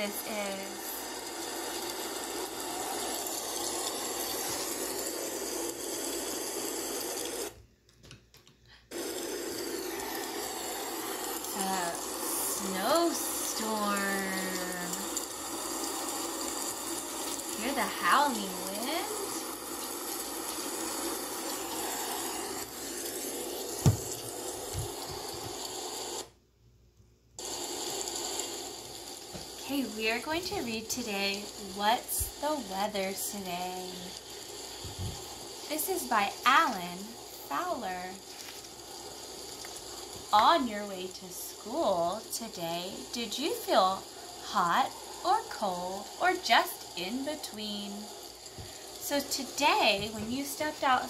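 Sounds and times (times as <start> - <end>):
howling wind through laptop speaker: 34.8 - 35.3.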